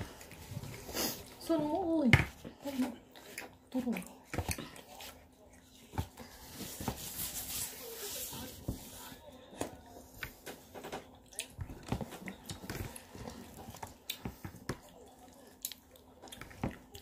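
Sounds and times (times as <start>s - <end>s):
child chewing: 0.0s - 1.7s, 2.6s - 6.3s, 9.8s - 17.0s.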